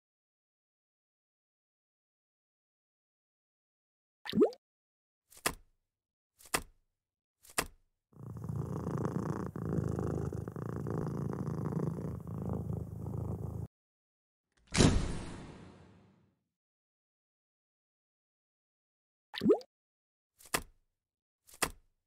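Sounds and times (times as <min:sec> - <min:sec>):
cat purring: 0:08.2 - 0:13.7.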